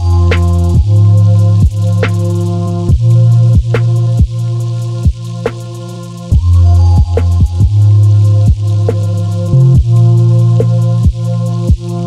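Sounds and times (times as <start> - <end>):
electronic music: 0.0 - 12.0
hi-hat ticks: 0.0 - 12.0.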